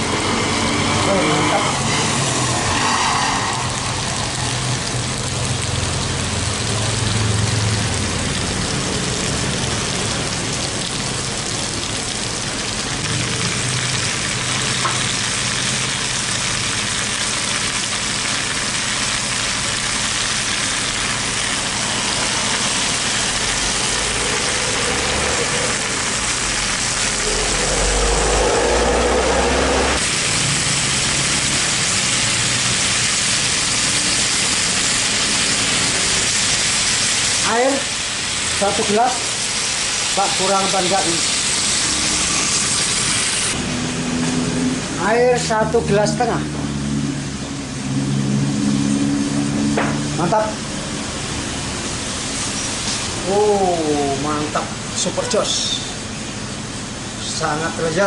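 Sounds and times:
fish frying in oil: 0.0s - 58.0s
low rumble: 21.6s - 30.0s.

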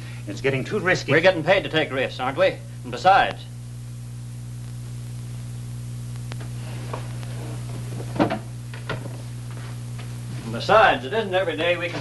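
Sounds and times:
film soundtrack hum and hiss: 0.0s - 12.0s
faint click: 6.1s - 6.5s.

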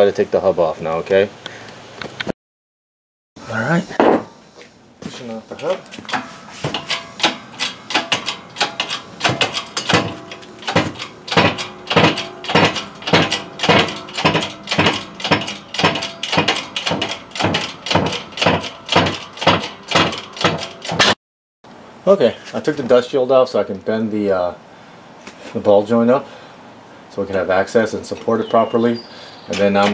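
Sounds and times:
metal ringing: 5.6s - 21.2s, 27.3s - 29.9s
sharp metallic clicks: 5.6s - 21.2s, 29.5s - 29.9s.

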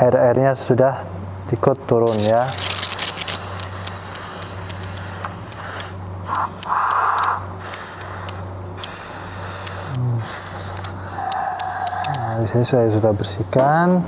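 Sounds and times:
aerosol spray hissing: 2.1s - 12.5s.

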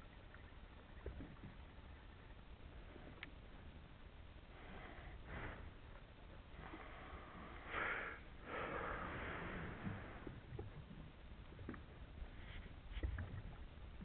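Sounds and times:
faint click: 3.1s - 3.4s.

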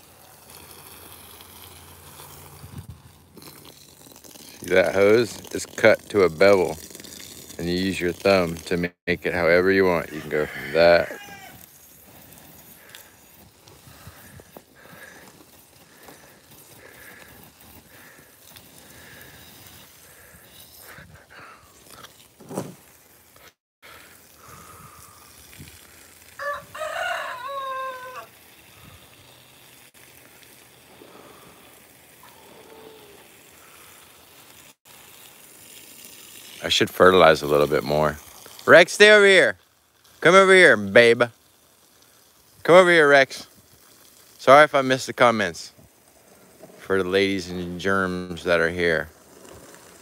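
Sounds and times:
water spraying from a hose: 0.0s - 50.0s
rooster crowing: 10.0s - 11.6s, 26.4s - 28.4s, 32.2s - 33.3s.

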